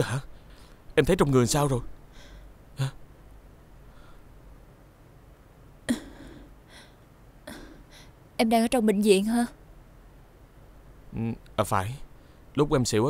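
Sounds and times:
person murmuring: 0:02.8 - 0:03.0.

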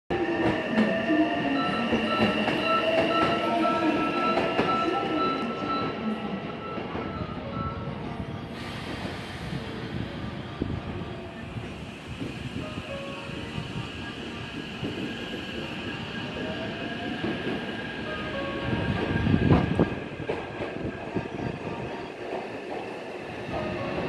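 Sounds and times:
steady high tone: 0:00.1 - 0:08.1.

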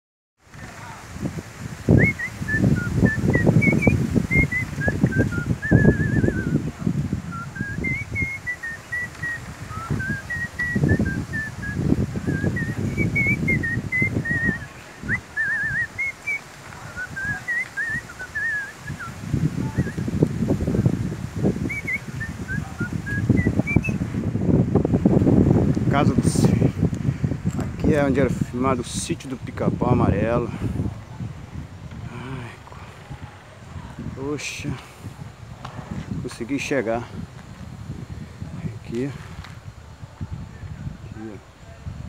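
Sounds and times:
wind buffeting microphone: 0:00.4 - 0:42.0
songbird singing: 0:00.5 - 0:24.1.

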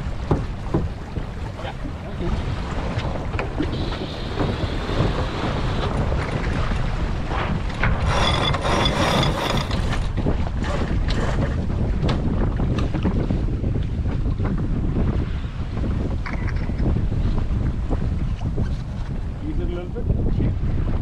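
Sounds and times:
water rushing past hull: 0:00.0 - 0:21.0
wind buffeting microphone: 0:00.0 - 0:21.0.

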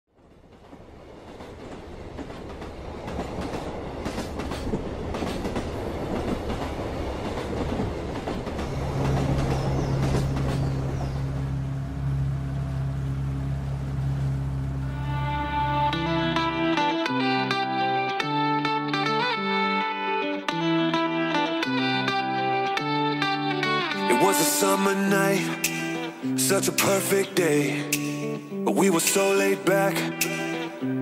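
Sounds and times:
train rumbling on rails: 0:00.1 - 0:16.8.

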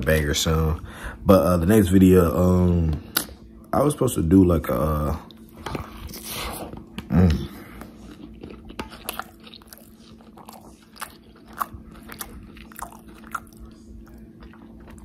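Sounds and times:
chewing and lip smacking: 0:05.2 - 0:15.0.

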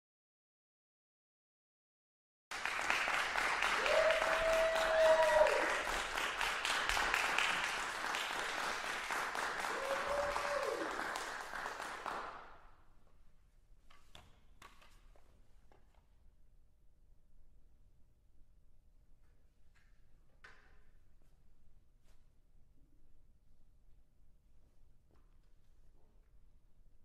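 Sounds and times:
audience applauding: 0:02.5 - 0:12.5.

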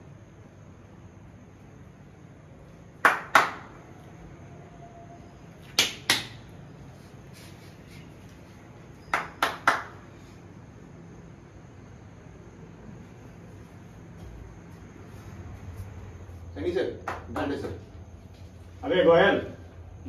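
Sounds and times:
sharp hand claps: 0:03.0 - 0:03.9, 0:05.6 - 0:06.5, 0:09.0 - 0:10.2, 0:16.9 - 0:17.8.

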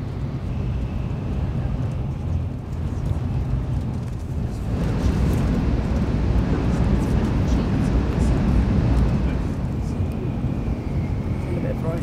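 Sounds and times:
train cabin rumble: 0:00.0 - 0:12.0.

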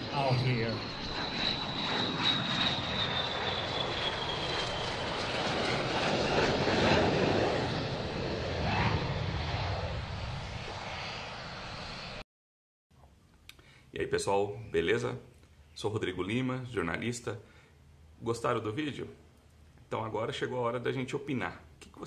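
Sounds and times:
jet engine flying past: 0:00.0 - 0:12.2.

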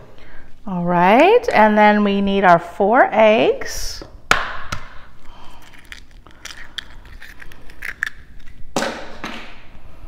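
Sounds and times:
egg cracking on bowl rim: 0:04.3 - 0:08.6
eggshell clicks and crackles: 0:04.3 - 0:08.7.

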